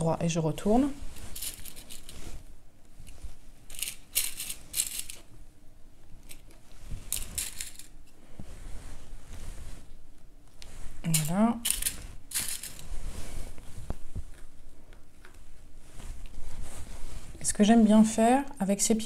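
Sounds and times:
hands rustling fabric on mat: 0.7s - 18.4s
metal washers clinking: 1.3s - 2.1s, 3.7s - 5.3s, 7.1s - 8.0s, 11.1s - 12.8s.

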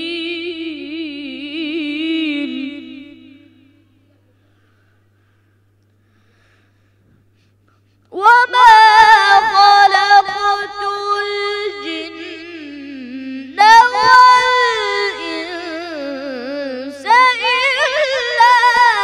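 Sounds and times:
boy reciting melodically: 8.1s - 19.0s.

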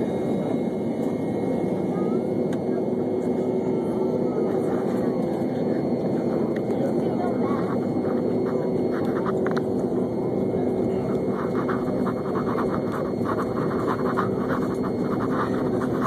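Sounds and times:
airliner cabin engine rush: 0.0s - 16.0s.

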